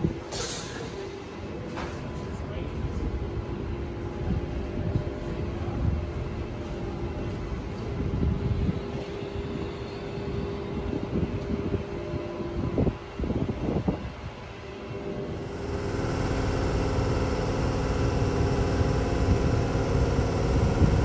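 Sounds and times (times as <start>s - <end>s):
wind rumble on microphone: 7.6s - 14.5s
electric train humming: 15.1s - 21.0s.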